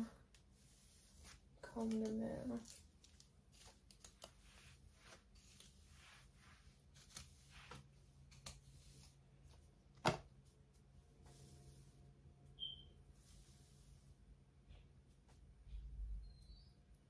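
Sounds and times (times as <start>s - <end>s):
comb rustling through hair: 0.0s - 12.2s, 13.0s - 14.3s.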